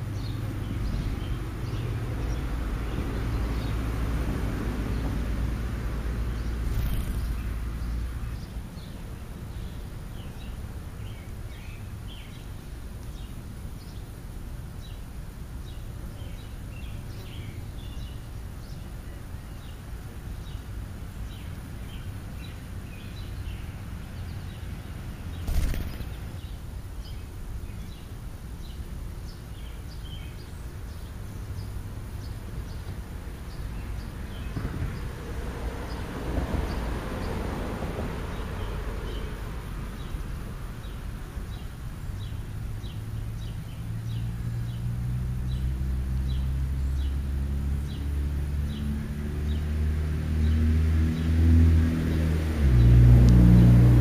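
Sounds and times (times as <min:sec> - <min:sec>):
bird chirps: 0:06.3 - 0:12.5, 0:25.3 - 0:28.1.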